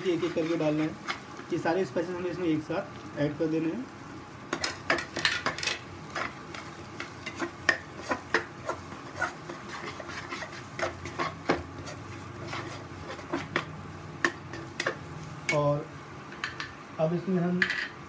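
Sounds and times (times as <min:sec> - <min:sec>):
metal spatula scraping a pan: 0:00.1 - 0:01.3, 0:04.6 - 0:13.7.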